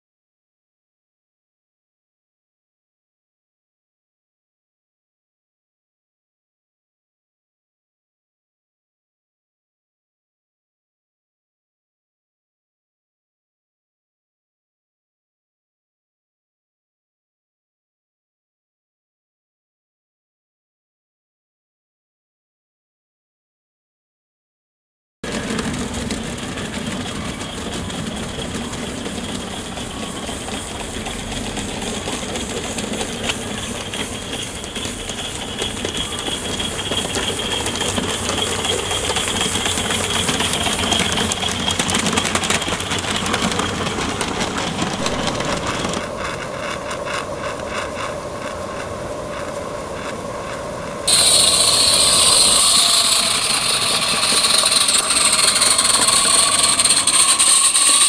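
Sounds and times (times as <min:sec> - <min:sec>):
wheels running over rails: 0:25.2 - 0:58.0
steam locomotive exhaust beat: 0:25.3 - 0:58.0
loud steady steam hiss: 0:25.6 - 0:58.0.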